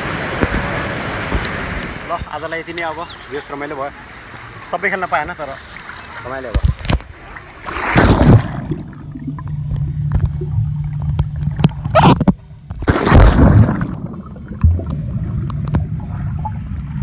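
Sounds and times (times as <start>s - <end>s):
water splashing and sloshing: 0.0s - 17.0s
low rumble: 8.2s - 17.0s.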